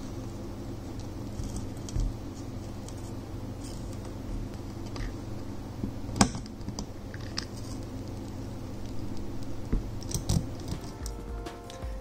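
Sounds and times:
steady low hum: 0:00.0 - 0:12.0
small clicks and crackles: 0:06.2 - 0:11.0.

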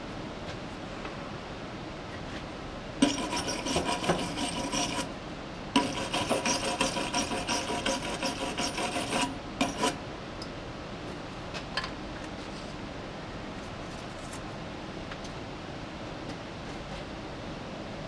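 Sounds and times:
gloved hand scrubbing metal fitting: 0:03.0 - 0:05.1, 0:05.8 - 0:10.0.

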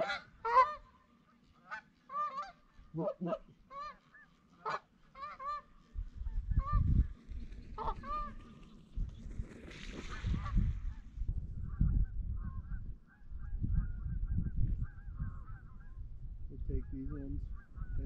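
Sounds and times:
goose honking: 0:00.0 - 0:05.8, 0:07.8 - 0:08.6.

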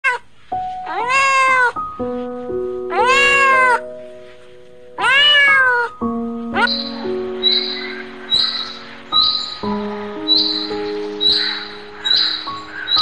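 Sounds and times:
cat meowing: 0:00.0 - 0:00.2, 0:00.8 - 0:01.8, 0:02.9 - 0:03.9, 0:05.0 - 0:06.0, 0:06.6 - 0:08.6
background music of held notes: 0:00.5 - 0:13.0.

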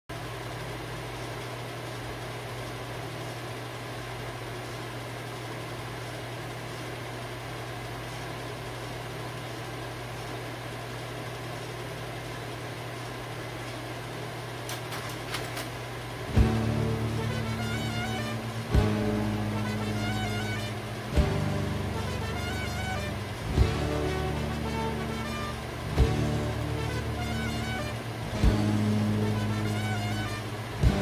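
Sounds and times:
projector cooling fans humming: 0:00.1 - 0:31.0
projector clicks: 0:14.6 - 0:15.9.

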